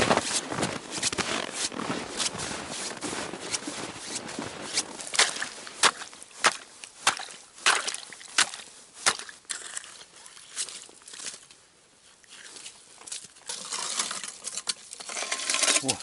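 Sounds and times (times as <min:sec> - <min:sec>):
knocks and scraping on ice: 0:00.0 - 0:11.6, 0:12.3 - 0:16.0
chisel striking ice: 0:05.2 - 0:09.6.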